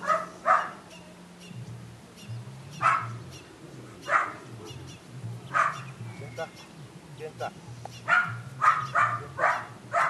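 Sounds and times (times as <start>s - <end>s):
puppy barking: 0.0s - 0.8s, 2.7s - 3.2s, 4.0s - 4.9s, 5.5s - 6.0s, 8.0s - 10.0s.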